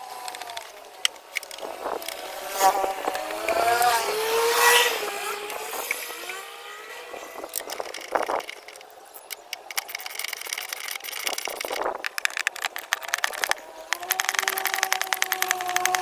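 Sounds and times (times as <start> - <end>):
vehicle engine revving: 1.5 - 8.4
sharp clicks: 7.4 - 16.0.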